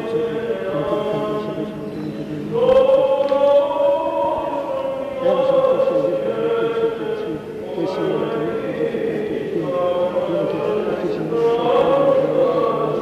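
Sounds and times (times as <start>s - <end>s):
voices chanting long held notes: 0.0s - 13.0s.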